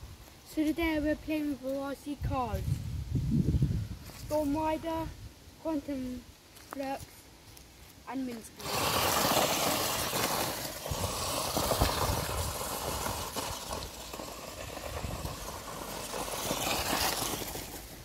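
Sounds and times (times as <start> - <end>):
tyres churning leaves: 8.1 - 18.0
toy car motors running: 8.5 - 18.0.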